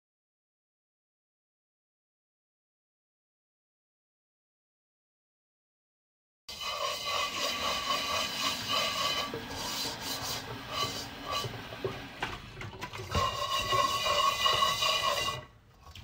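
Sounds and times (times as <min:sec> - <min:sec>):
dishes being scrubbed: 0:06.5 - 0:16.0.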